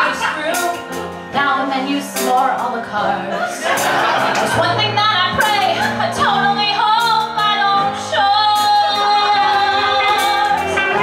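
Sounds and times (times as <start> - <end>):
woman singing into microphone: 0.0 - 3.6, 4.5 - 11.0
instrumental accompaniment: 0.0 - 11.0.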